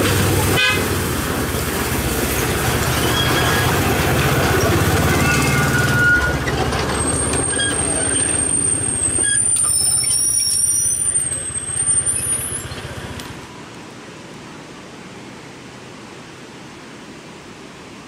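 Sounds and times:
train rumbling on rails: 0.0 - 13.6
high brake squeal: 2.9 - 3.9, 4.6 - 13.2.

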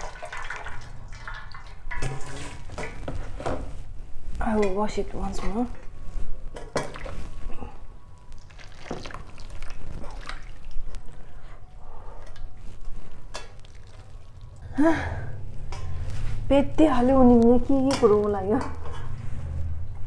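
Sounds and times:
hot water pouring into basin: 0.0 - 2.9, 8.4 - 10.8.

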